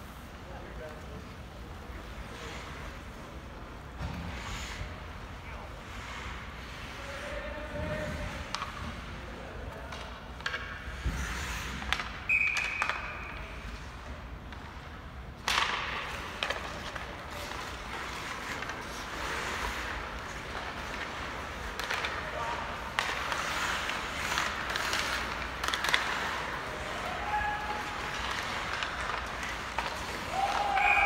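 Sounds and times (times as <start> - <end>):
hockey sticks and puck clacking: 0.0 - 31.0
skating noise: 0.0 - 31.0
hissing skate scrape: 1.0 - 9.4, 10.6 - 12.8, 15.5 - 31.0.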